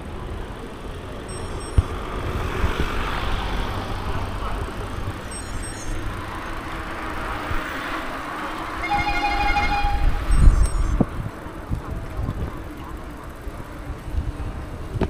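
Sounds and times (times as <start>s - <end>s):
vehicle rumble and hiss: 0.0s - 15.0s
vehicle horn: 8.7s - 10.9s.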